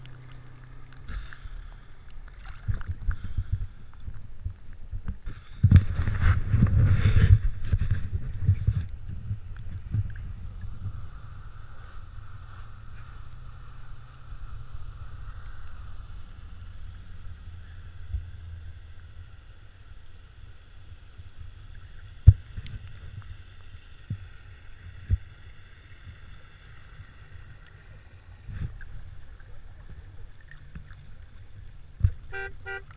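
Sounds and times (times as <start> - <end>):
water sloshing: 0.0 - 14.5, 26.0 - 32.9
boat engine idling: 27.9 - 32.9.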